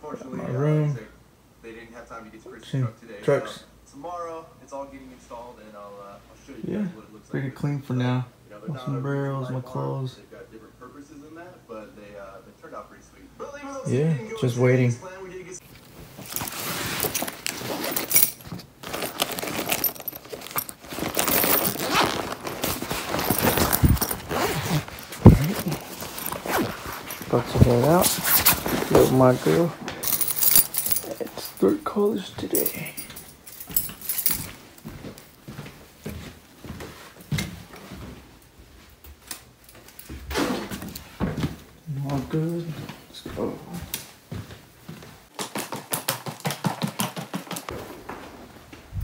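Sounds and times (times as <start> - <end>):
fabric rustling and scraping: 15.6 - 31.7
small metal clinks: 16.2 - 28.8, 30.0 - 34.6
phone handling knocks and rustles: 22.4 - 29.1.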